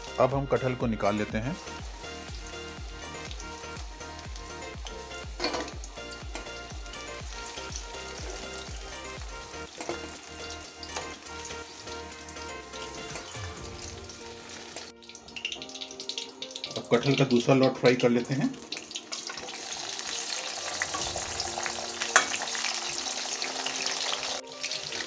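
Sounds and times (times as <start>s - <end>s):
food sizzling in hot oil: 0.0s - 25.0s
spatula stirring in pan: 4.4s - 13.4s.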